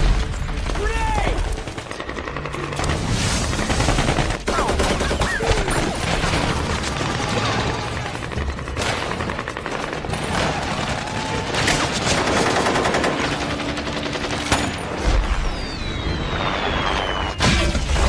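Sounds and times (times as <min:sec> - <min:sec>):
falling whistle: 0:15.1 - 0:17.8.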